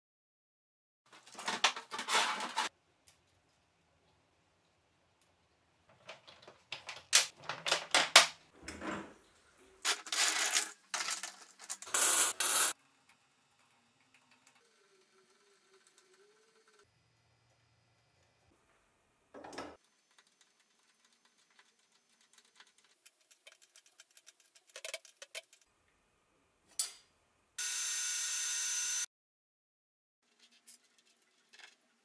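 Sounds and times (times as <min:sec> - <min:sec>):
steel parts clinking and rattling: 0:09.8 - 0:12.7, 0:22.5 - 0:25.6.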